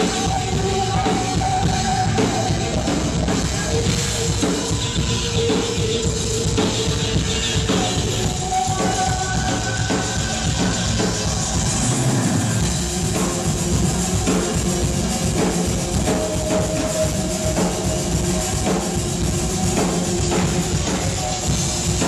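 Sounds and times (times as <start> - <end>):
drum kit beat: 0.0 - 22.0
live band playing: 0.0 - 22.0.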